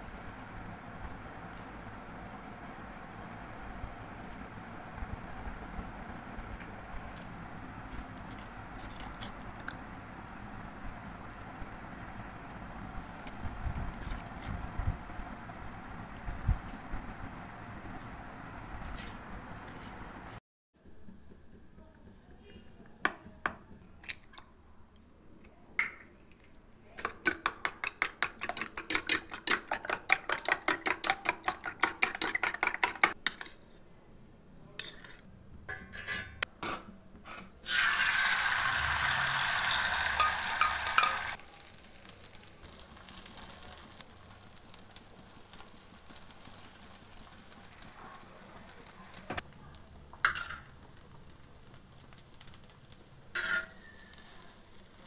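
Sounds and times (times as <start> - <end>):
frying sizzle: 0.0 - 20.4, 37.6 - 55.0
spoon scraping pan: 34.8 - 36.4, 39.6 - 41.4, 53.4 - 54.6
metal spoon clinking in steel bowl: 40.1 - 41.4, 53.4 - 54.2.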